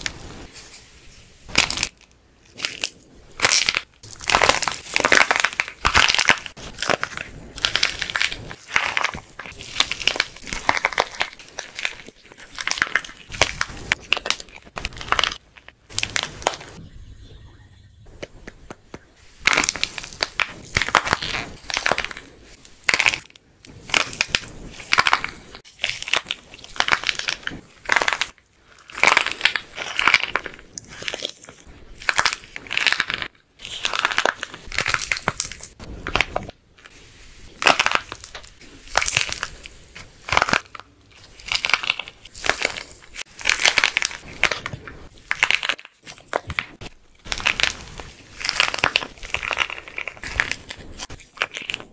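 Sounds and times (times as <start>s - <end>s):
dried clay crackling when crushed: 0.0s - 16.8s, 18.1s - 51.9s.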